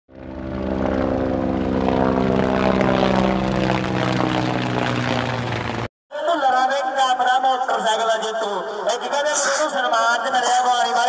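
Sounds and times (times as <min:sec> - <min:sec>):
propeller engine drone: 0:00.1 - 0:05.9.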